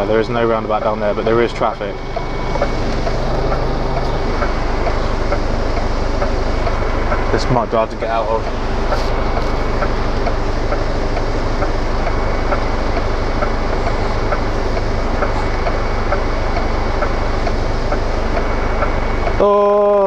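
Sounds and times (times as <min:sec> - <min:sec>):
turn indicator ticking: 0:00.0 - 0:19.5
diesel engine idling: 0:00.0 - 0:20.0.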